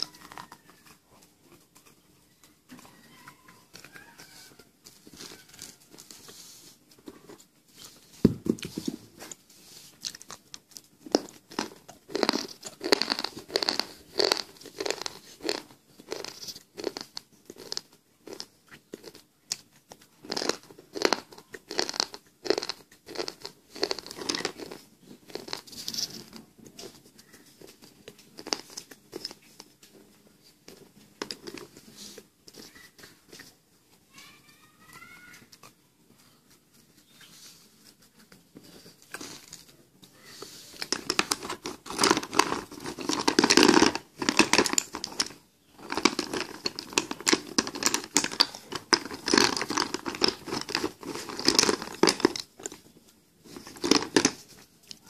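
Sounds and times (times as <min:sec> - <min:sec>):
crisp chewing crunches: 0:10.0 - 0:29.4, 0:40.7 - 0:55.0.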